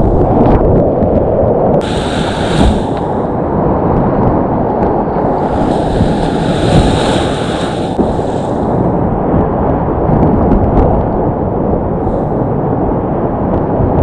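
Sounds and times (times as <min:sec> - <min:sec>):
spray hissing and splashing: 0:01.8 - 0:03.2, 0:05.3 - 0:08.7
whitewater rapids rushing: 0:01.8 - 0:03.2, 0:05.3 - 0:08.7.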